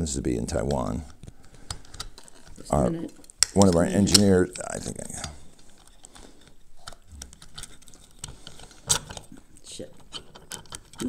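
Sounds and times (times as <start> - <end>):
metal parts clicking together: 3.2 - 4.3, 10.0 - 11.0.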